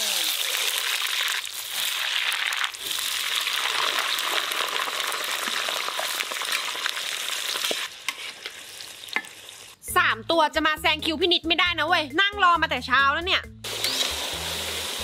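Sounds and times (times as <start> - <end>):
fries sizzling in hot oil: 0.0 - 9.8, 13.6 - 15.0
metal spatula stirring: 7.5 - 9.4.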